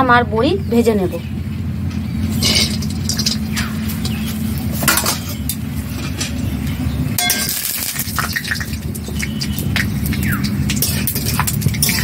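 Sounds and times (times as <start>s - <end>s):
steady low hum: 0.0s - 12.0s
metallic clinks in a steel pan: 7.2s - 7.6s.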